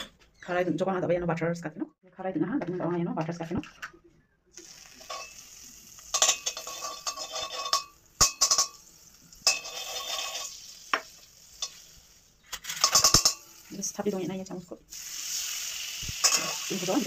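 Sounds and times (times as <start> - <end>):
butter sizzling in a pan: 4.6 - 12.4, 14.9 - 17.0
scraping in a metal pan: 6.1 - 8.8, 9.4 - 10.7.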